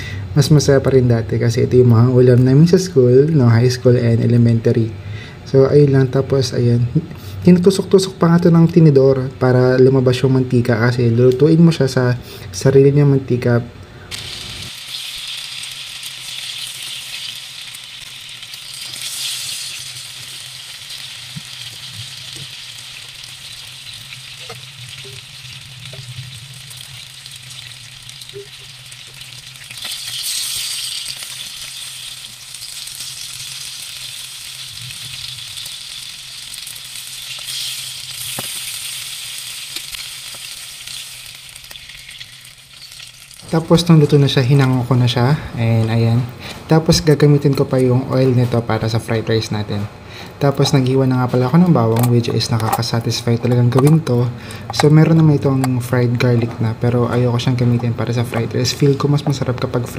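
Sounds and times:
sausages sizzling in a pan: 0:14.1 - 0:44.8.

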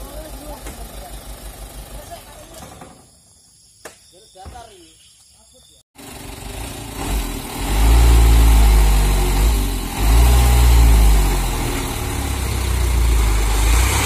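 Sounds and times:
diesel truck engine revving: 0:06.0 - 0:14.0.

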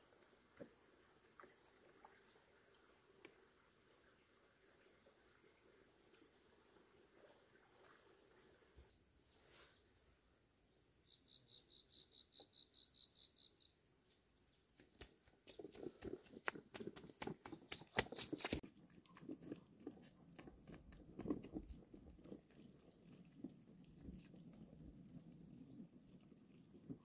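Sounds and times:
child's footsteps on dirt path: 0:14.8 - 0:22.0.

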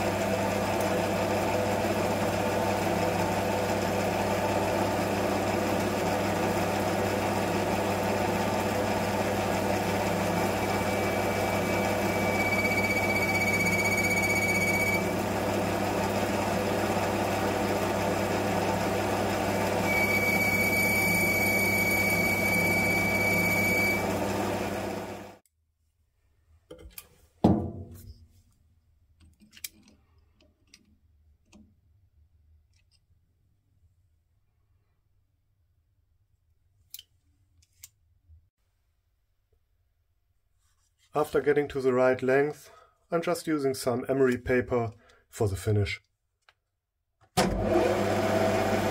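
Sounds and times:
lathe motor hum: 0:00.0 - 0:25.4, 0:47.5 - 0:48.9
high whine of lathe cutting: 0:04.2 - 0:25.4, 0:47.6 - 0:48.9
sharp knock: 0:27.4 - 0:28.1.

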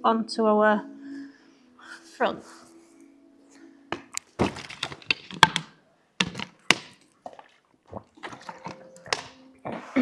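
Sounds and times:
bottle handling noises: 0:03.9 - 0:09.5
plastic bottle crackling: 0:04.0 - 0:09.4.

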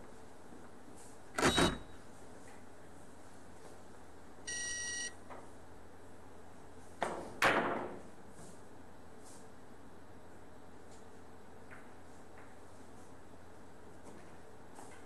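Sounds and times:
short electronic beep: 0:04.5 - 0:05.1.

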